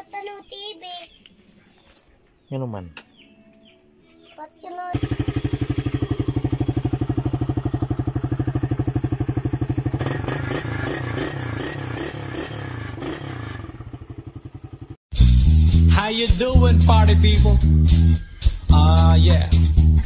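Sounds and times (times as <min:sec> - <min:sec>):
motorcycle engine starting and idling: 0:05.0 - 0:15.0.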